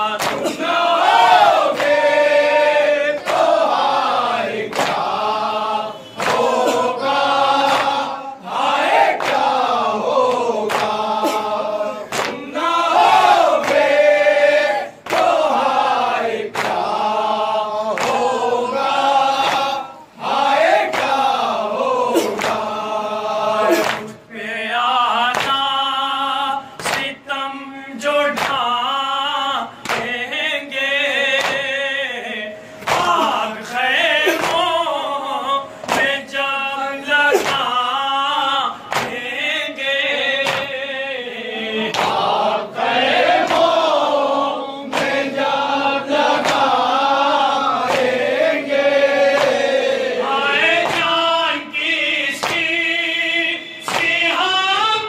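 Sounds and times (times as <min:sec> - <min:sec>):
men chanting a lament: 0:00.0 - 0:55.0
hands slapping chests: 0:00.1 - 0:02.2, 0:03.2 - 0:04.1, 0:04.7 - 0:05.3, 0:06.0 - 0:15.9, 0:16.5 - 0:17.0, 0:17.9 - 0:19.8, 0:20.7 - 0:21.3, 0:22.2 - 0:22.8, 0:23.6 - 0:24.2, 0:25.3 - 0:25.7, 0:26.8 - 0:27.2, 0:28.3 - 0:28.7, 0:29.8 - 0:30.2, 0:31.4 - 0:31.7, 0:32.8 - 0:33.4, 0:34.3 - 0:34.8, 0:35.8 - 0:36.2, 0:37.3 - 0:37.8, 0:38.8 - 0:39.3, 0:40.4 - 0:40.8, 0:41.9 - 0:42.4, 0:43.2 - 0:44.2, 0:44.8 - 0:45.6, 0:46.2 - 0:46.9, 0:47.7 - 0:48.3, 0:49.2 - 0:49.8, 0:50.7 - 0:51.2, 0:52.4 - 0:52.7, 0:53.9 - 0:54.3.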